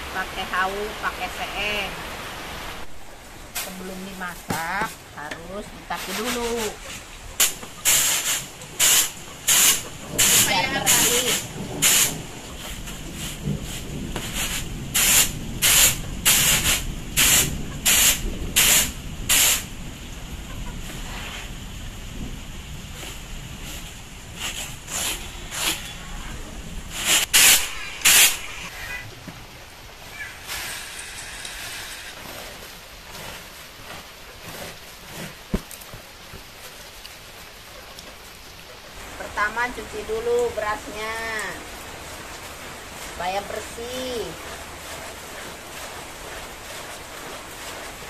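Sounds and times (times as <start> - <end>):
rice swishing on bamboo tray: 23.0 - 26.0, 30.4 - 35.9.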